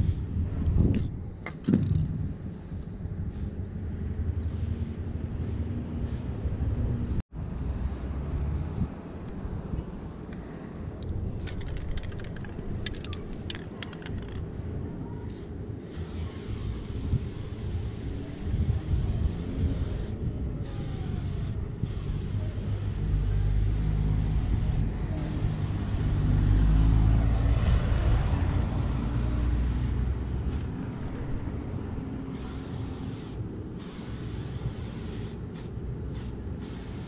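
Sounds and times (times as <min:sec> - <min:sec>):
spray paint can hissing: 0:00.0 - 0:00.2, 0:02.5 - 0:03.7, 0:04.5 - 0:06.4, 0:08.6 - 0:09.3, 0:11.4 - 0:14.4, 0:15.3 - 0:27.0, 0:28.0 - 0:30.8, 0:32.3 - 0:37.0.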